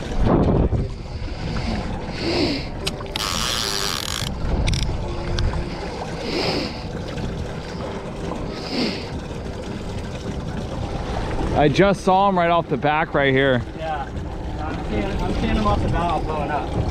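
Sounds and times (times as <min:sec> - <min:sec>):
wind on microphone: 0:00.0 - 0:06.0
outboard motor rumbling: 0:00.0 - 0:16.9
water against hull: 0:00.0 - 0:16.9.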